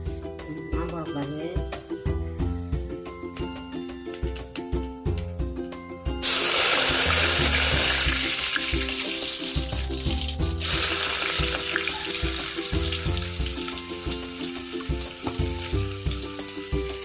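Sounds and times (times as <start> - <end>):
hot oil sizzling: 6.2 - 17.0.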